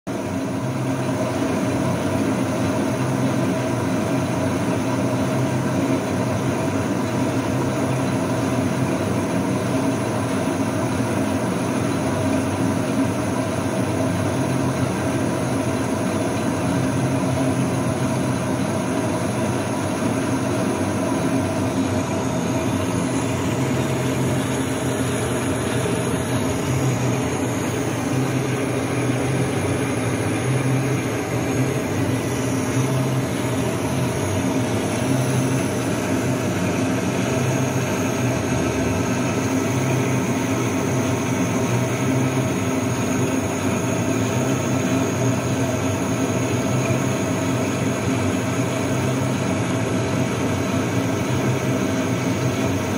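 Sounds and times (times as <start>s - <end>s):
metal lathe running: 0.1s - 52.9s.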